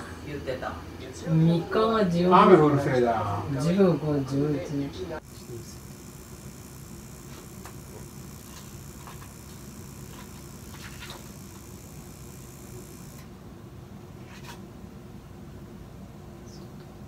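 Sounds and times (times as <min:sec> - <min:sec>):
low indoor hum: 0:00.0 - 0:17.0
high hiss: 0:05.2 - 0:13.2.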